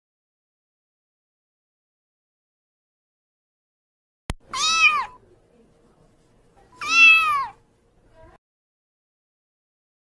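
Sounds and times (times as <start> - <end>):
kitten meowing: 4.4 - 5.2, 6.7 - 7.6.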